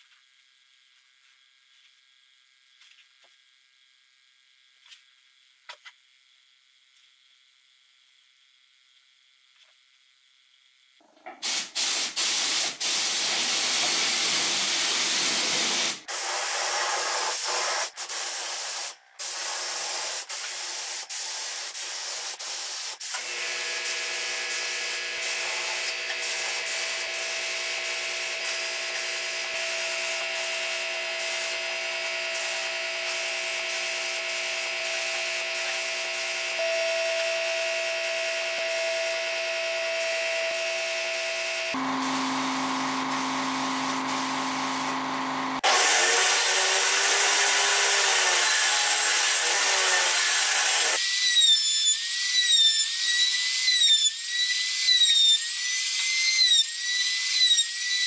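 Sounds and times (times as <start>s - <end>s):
spray gun hissing: 11.4s - 23.2s, 25.2s - 31.7s, 40.8s - 47.9s
air compressor hum and whine: 22.0s - 47.4s.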